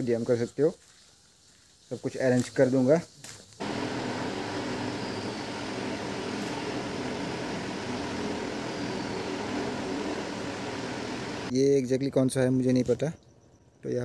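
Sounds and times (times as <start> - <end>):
steady rushing noise: 3.6 - 11.5.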